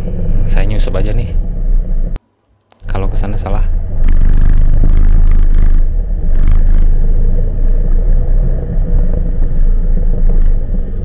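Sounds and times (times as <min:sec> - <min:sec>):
motorcycle engine rumble: 0:00.0 - 0:02.2, 0:02.8 - 0:11.0
passing vehicles: 0:00.0 - 0:02.2.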